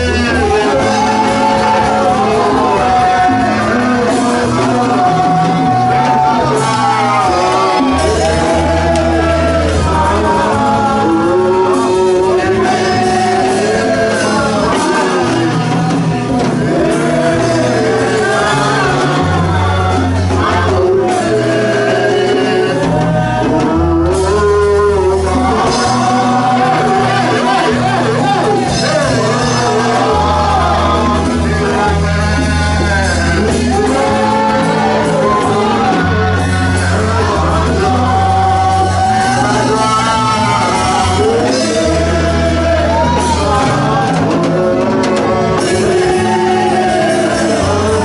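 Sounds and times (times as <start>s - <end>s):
band with keyboard drums and bass: 0.0s - 48.0s
man singing into microphone: 0.0s - 48.0s.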